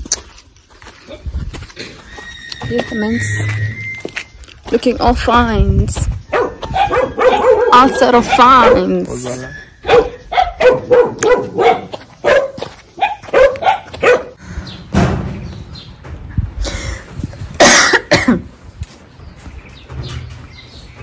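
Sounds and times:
dog barking: 6.3s - 9.2s, 9.8s - 14.4s.

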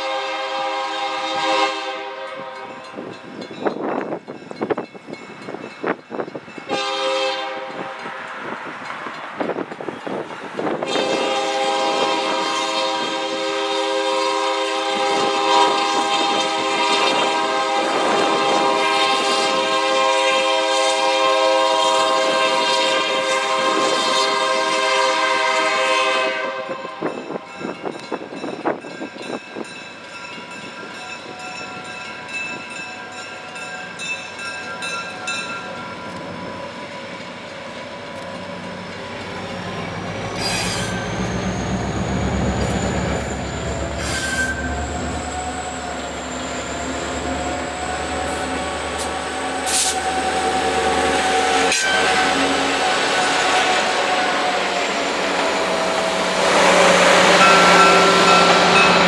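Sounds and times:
locomotive air horn: 0.0s - 2.8s, 6.7s - 8.1s, 10.8s - 27.4s, 39.4s - 41.2s, 42.6s - 59.0s
train rumbling past: 0.0s - 59.0s
crossing bell ringing: 2.2s - 10.3s, 26.8s - 37.6s, 38.4s - 53.6s, 54.2s - 59.0s.

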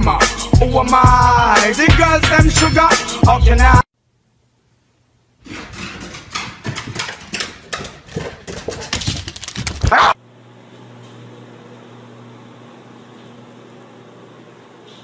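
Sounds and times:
dog barking: 9.9s - 10.2s.

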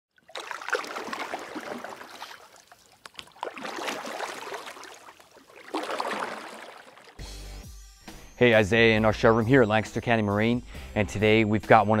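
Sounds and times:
water splashing and swishing: 0.1s - 7.4s.

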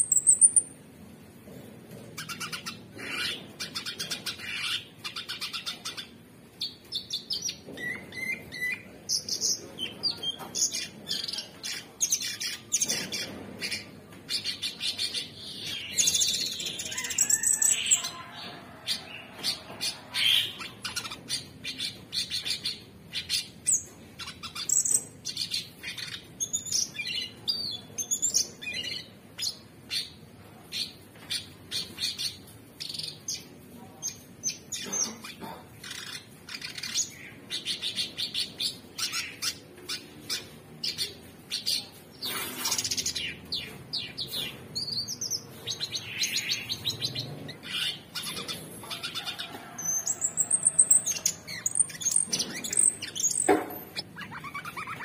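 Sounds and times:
bird chirping and whistling: 50.0s - 55.0s.

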